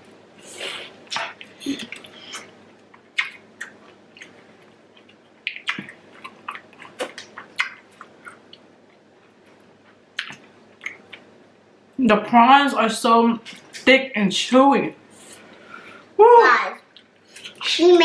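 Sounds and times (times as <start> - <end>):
lip smacks: 0.6 - 4.4, 5.0 - 8.7, 10.2 - 11.3
wet chewing: 1.1 - 11.3.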